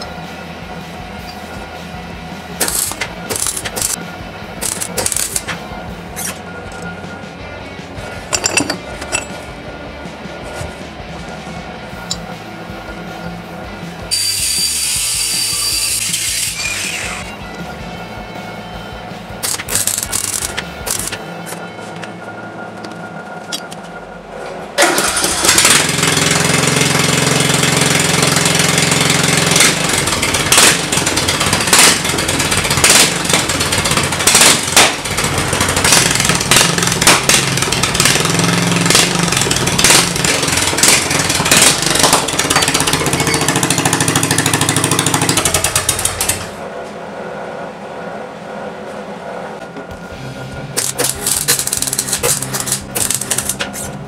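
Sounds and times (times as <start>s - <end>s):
arc welding crackle: 2.6s - 4.0s, 50.8s - 53.6s.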